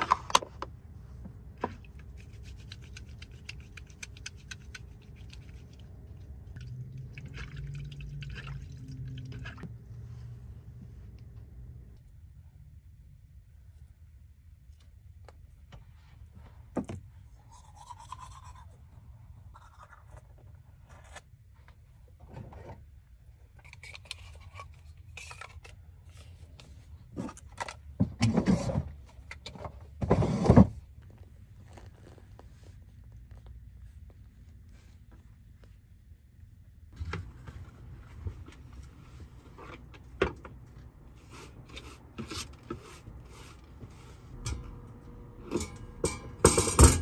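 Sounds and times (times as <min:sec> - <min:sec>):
faint low hum: 0:00.0 - 0:29.9
rustling: 0:30.2 - 0:44.4.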